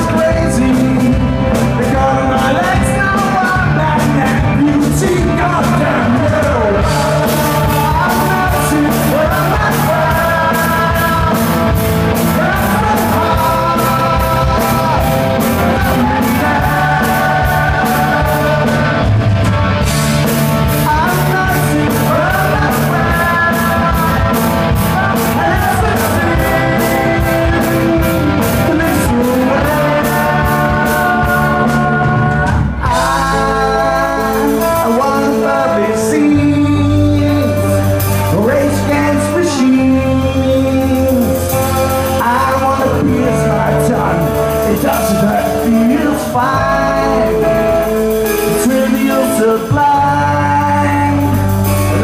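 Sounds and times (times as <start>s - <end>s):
man singing: 0.0s - 52.0s
rock band playing: 0.0s - 52.0s
woman singing: 20.8s - 37.6s.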